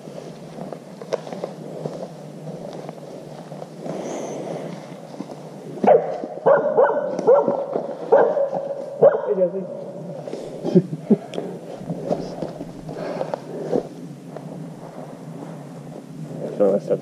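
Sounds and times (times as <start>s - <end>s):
rustling hiss: 0.0s - 17.0s
dog barking and whining: 5.8s - 9.5s.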